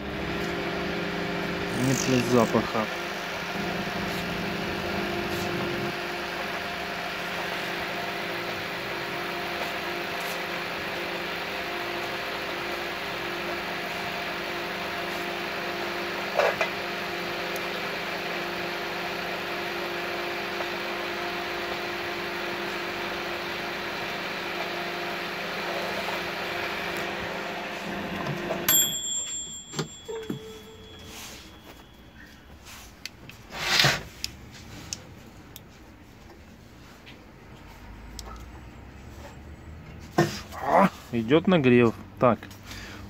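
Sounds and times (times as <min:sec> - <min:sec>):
transformer electrical hum: 0:00.0 - 0:09.4
cooling fan: 0:00.0 - 0:38.4.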